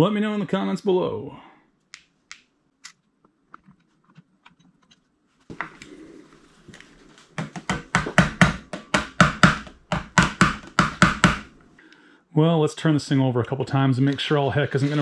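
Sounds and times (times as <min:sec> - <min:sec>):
rapid sharp clicking knocks: 0:07.7 - 0:11.5.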